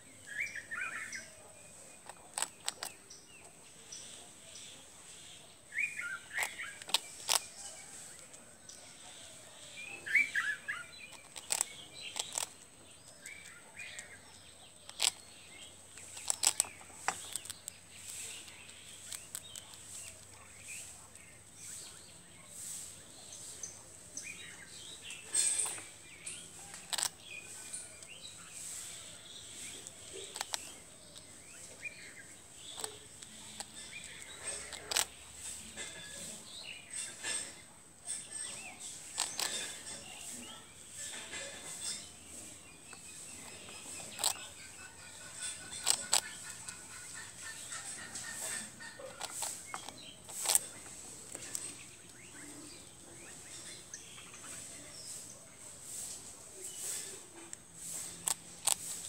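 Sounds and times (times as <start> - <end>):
birds chirping: 0.0 - 59.0
small animal crunching toast: 1.8 - 3.1, 5.8 - 8.4, 10.4 - 14.2, 14.8 - 20.6, 24.8 - 36.0, 38.0 - 41.5, 43.4 - 52.5, 57.8 - 59.0.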